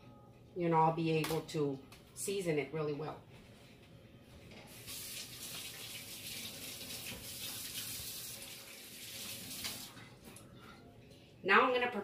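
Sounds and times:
faucet running into a sink: 0:04.7 - 0:10.0
hands washing under water: 0:04.7 - 0:10.0.

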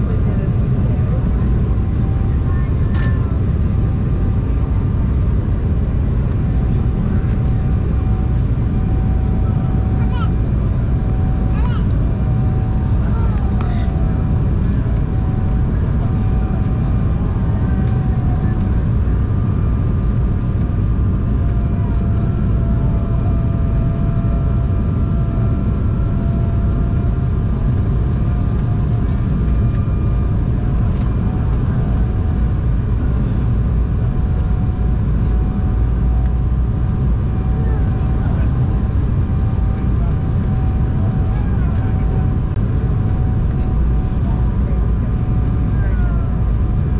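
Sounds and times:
airliner cabin engine rumble: 0:00.0 - 0:46.9.

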